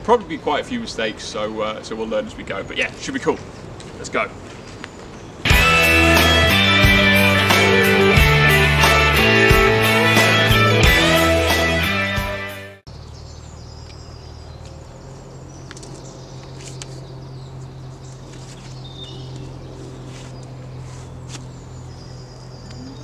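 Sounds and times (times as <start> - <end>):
small birds chirping: 0.2 - 5.5, 12.9 - 23.0
guitar music: 5.5 - 12.8.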